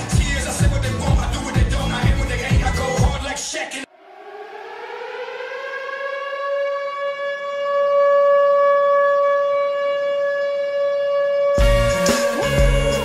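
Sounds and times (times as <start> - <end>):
hockey goal horn blast: 11.5 - 13.0.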